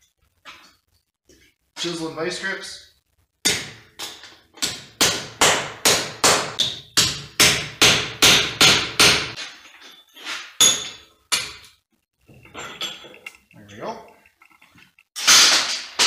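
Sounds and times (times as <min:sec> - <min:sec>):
hammer striking metal chisel: 0:03.5 - 0:09.4.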